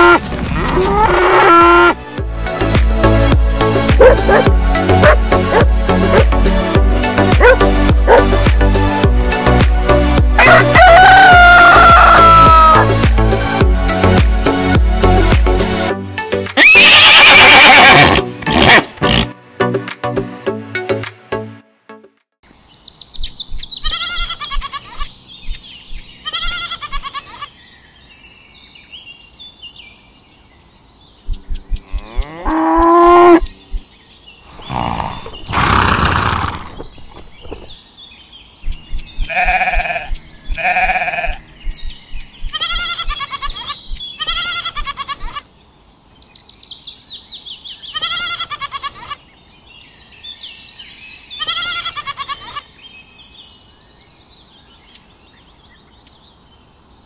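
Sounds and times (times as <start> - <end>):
animal bleats: 0.0 - 2.0, 23.8 - 25.1, 26.2 - 27.5, 31.8 - 33.4, 39.2 - 41.4, 42.5 - 45.4, 47.9 - 49.2, 51.4 - 52.6.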